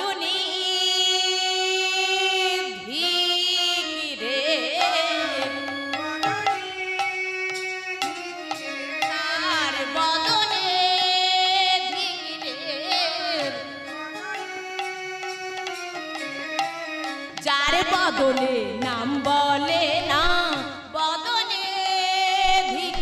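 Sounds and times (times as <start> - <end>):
woman singing into a microphone: 0.0 - 6.9, 8.2 - 14.5, 17.2 - 23.0
percussion strokes: 4.7 - 21.5.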